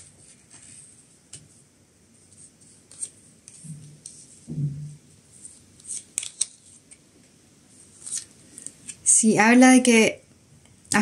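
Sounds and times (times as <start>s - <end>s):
cards clicking and rustling: 5.8s - 7.0s, 8.0s - 9.0s.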